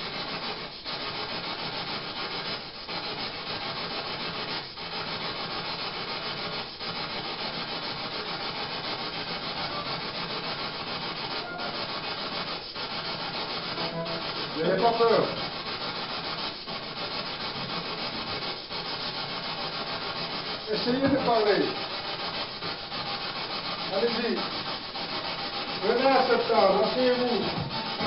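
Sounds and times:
pulsing static hiss: 9.4 - 15.6, 19.4 - 28.0.

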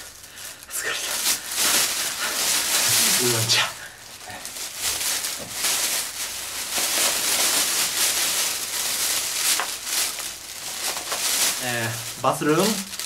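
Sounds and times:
plastic bag rustling: 0.0 - 13.0.

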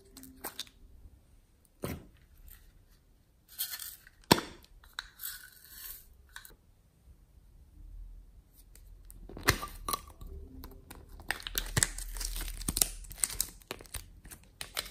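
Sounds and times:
plastic clicks and rustles: 11.2 - 14.9.

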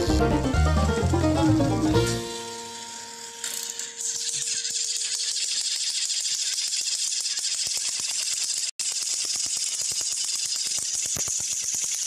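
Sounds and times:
toy train motors whirring: 1.0 - 12.0
rapid clicking rattle of gears: 3.4 - 12.0.

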